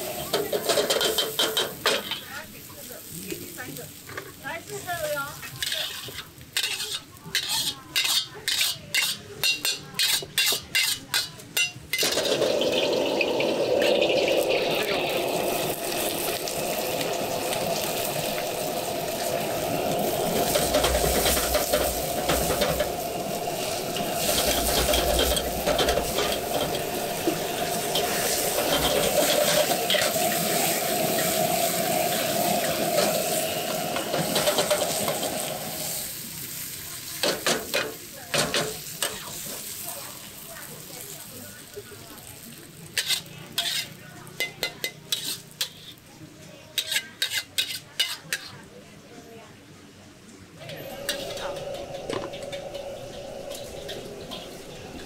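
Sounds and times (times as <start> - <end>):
greens sizzling in a wok: 0.0 - 49.0, 50.6 - 55.0
metal spatula scraping a wok: 5.3 - 12.4, 15.4 - 36.0, 42.9 - 46.1, 46.7 - 48.6, 50.6 - 55.0.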